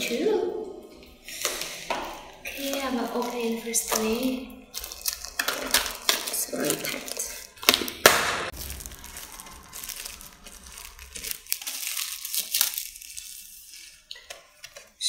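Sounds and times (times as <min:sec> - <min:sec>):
plastic wrap crinkling and tearing: 0:01.0 - 0:15.0
loud plastic cracks: 0:04.7 - 0:12.8.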